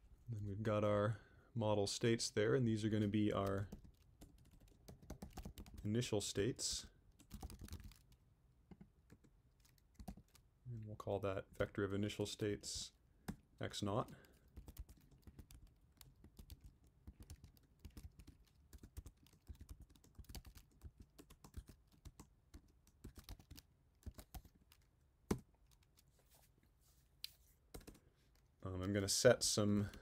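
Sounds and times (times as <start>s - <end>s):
typing on computer keyboard: 3.3s - 5.9s, 7.2s - 8.2s, 9.1s - 10.4s, 14.1s - 26.0s, 27.7s - 28.0s.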